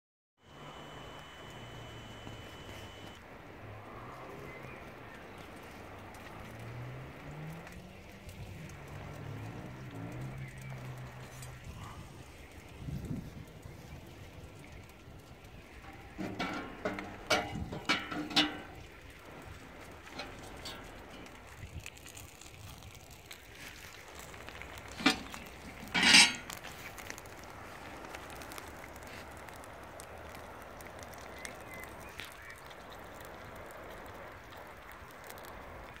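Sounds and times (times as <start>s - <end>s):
metal tool clanking on metal tray: 16.2s - 18.7s, 25.0s - 26.6s.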